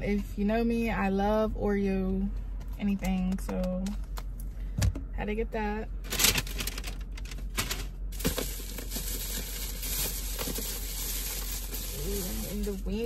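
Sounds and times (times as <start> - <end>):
paper bag rustling: 6.1 - 13.0.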